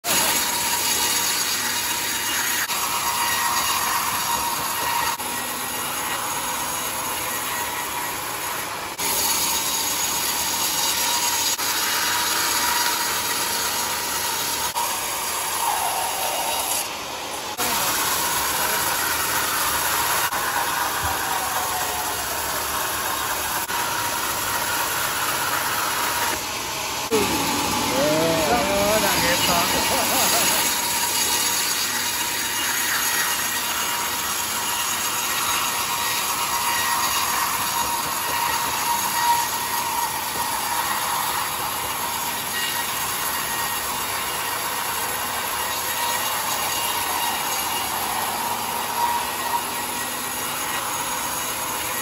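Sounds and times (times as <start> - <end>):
band sawmill cutting log: 0.0 - 52.0
thin high whine: 25.4 - 31.2.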